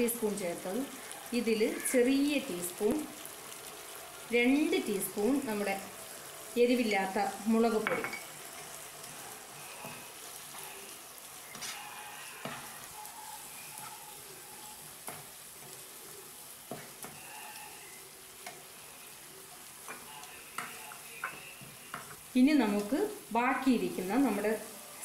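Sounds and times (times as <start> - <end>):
food sizzling in a frying pan: 0.0 - 25.0
spatula scraping and tapping a pan: 11.5 - 12.9, 14.9 - 15.9, 16.6 - 17.7, 19.8 - 22.9.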